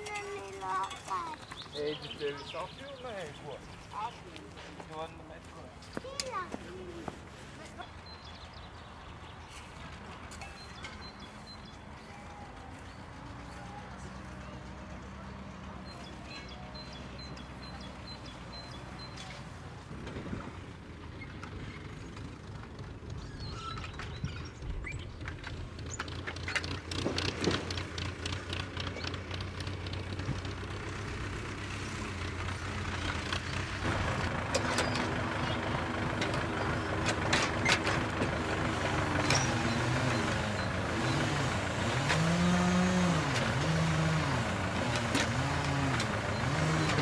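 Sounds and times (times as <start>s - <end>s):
tractor diesel engine running: 0.0s - 47.0s
knocks and clanks: 21.3s - 30.6s, 33.0s - 39.8s.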